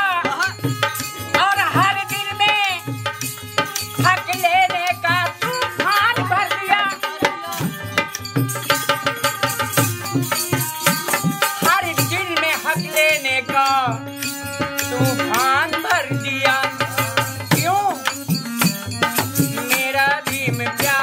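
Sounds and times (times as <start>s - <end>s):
harmonium held notes: 0.0s - 20.8s
hand drum steady beat: 0.0s - 21.0s
sharp clicking percussion: 0.1s - 21.0s
man singing folk melody: 14.8s - 18.2s, 19.1s - 21.0s.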